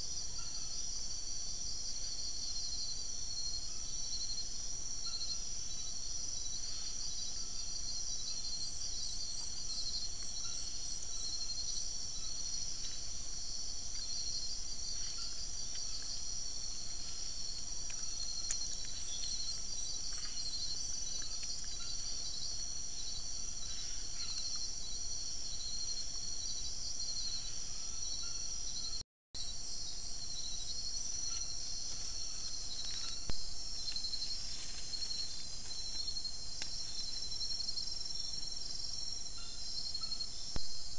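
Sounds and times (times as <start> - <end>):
insects trilling: 0.0 - 40.9
faint ticks and rustles: 12.4 - 22.6, 30.8 - 38.6.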